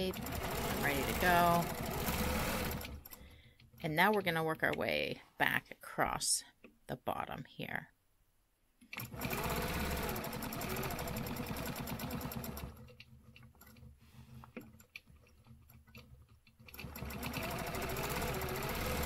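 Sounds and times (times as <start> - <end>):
quilting machine needle rattle: 0.0 - 4.5, 8.9 - 19.0.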